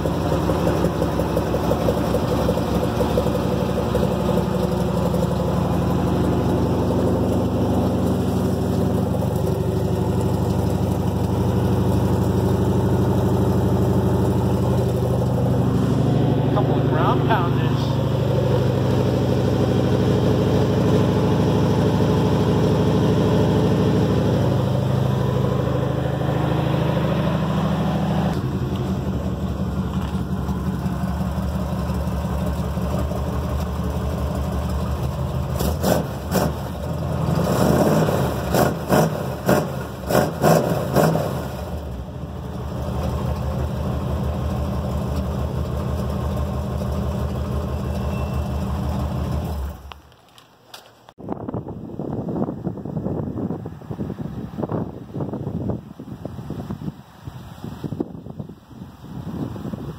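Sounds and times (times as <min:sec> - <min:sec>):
pickup truck engine idling: 0:00.0 - 0:37.5, 0:41.5 - 0:50.0.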